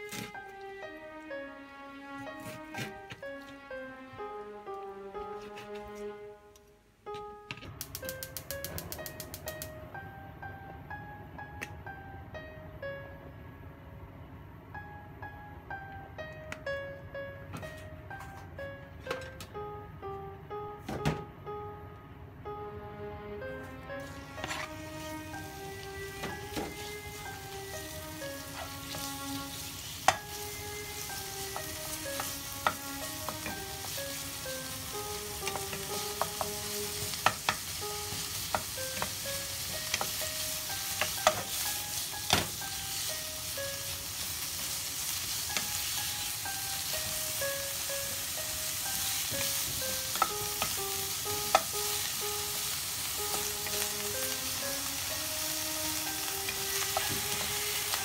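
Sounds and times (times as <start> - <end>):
simple background melody: 0.0 - 58.0
meat sizzling in oil: 24.0 - 58.0
wooden spatula knocking pan: 37.2 - 39.2.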